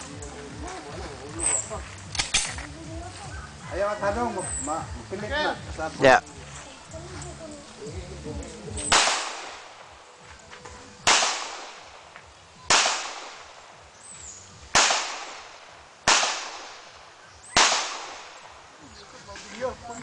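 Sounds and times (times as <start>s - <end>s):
pistol shots with echo: 8.8s - 10.0s, 11.0s - 12.1s, 12.7s - 13.8s, 14.7s - 18.7s.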